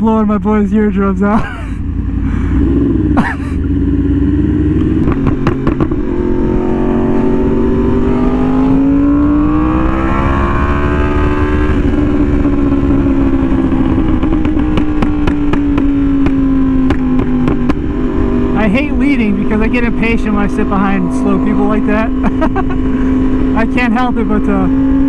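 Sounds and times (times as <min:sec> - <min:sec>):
motorcycle engine cruising: 0:00.0 - 0:25.0
sharp exhaust pops: 0:04.8 - 0:06.0, 0:13.8 - 0:18.0.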